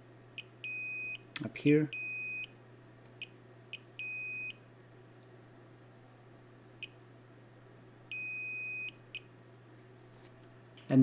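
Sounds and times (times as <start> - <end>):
multimeter continuity beep: 0.4 - 1.3, 1.9 - 2.6, 3.2 - 4.6, 8.1 - 9.3.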